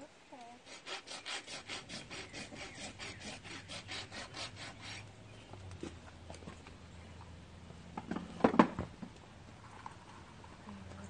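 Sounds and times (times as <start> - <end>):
scraping horse hoof: 0.7 - 5.1.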